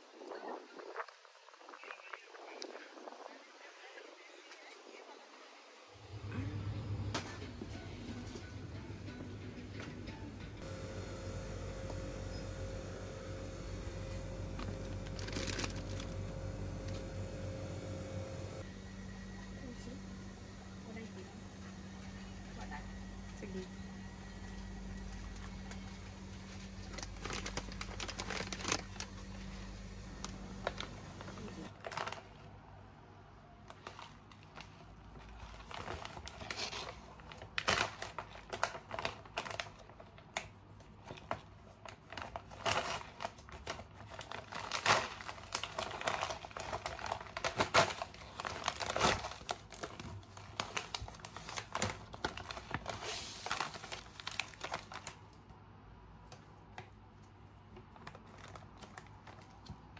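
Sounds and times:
steady low hum: 0:06.0 - 0:31.7
plastic wrapping crinkling and tearing: 0:11.7 - 0:17.4, 0:24.5 - 0:32.5, 0:33.7 - 0:55.4, 0:57.8 - 0:59.9.

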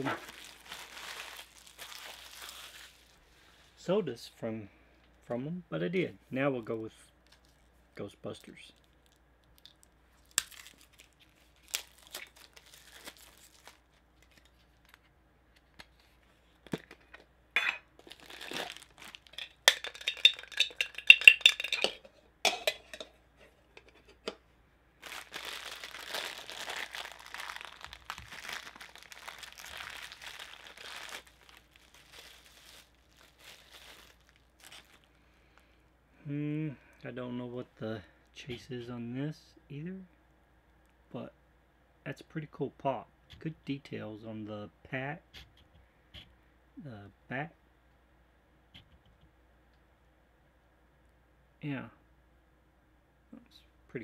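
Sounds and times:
plastic bag crinkling: 0:00.0 - 0:03.2, 0:08.4 - 0:15.1, 0:18.0 - 0:22.0, 0:25.0 - 0:35.2
metal can and lid clinking: 0:19.3 - 0:24.4.

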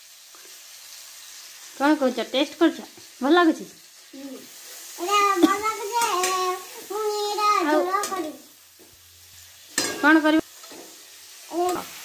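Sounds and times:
toddler talking: 0:04.1 - 0:08.5, 0:11.5 - 0:12.0.

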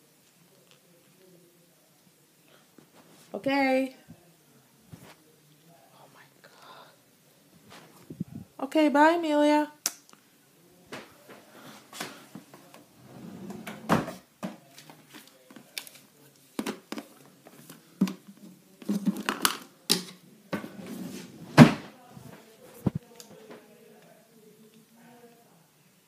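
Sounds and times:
toys knocking and rustling: 0:16.6 - 0:20.8.

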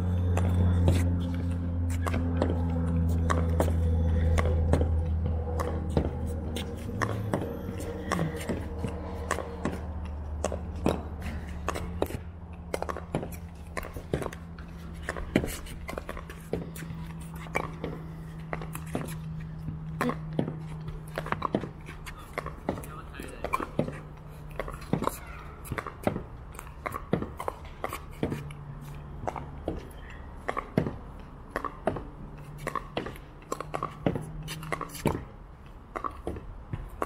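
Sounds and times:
low steady hum: 0:00.0 - 0:23.2.

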